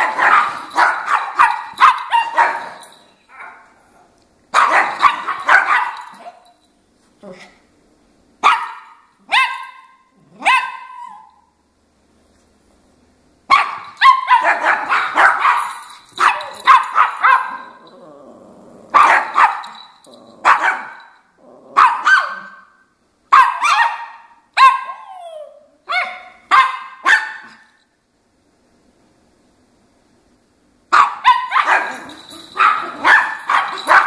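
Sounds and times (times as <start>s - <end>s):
small dog barking: 0.0s - 3.7s, 4.5s - 6.4s, 8.4s - 11.4s, 13.5s - 17.8s, 18.9s - 19.8s, 20.4s - 21.1s, 21.7s - 25.2s, 25.9s - 27.7s, 30.9s - 34.0s.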